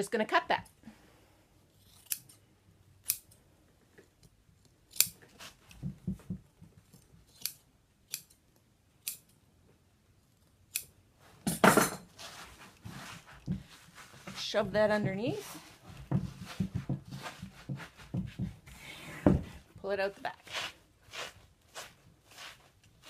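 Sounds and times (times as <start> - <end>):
cutting and handling noise: 1.7 - 9.4, 12.1 - 19.7, 20.3 - 23.0
shears snipping through batting: 4.9 - 5.2.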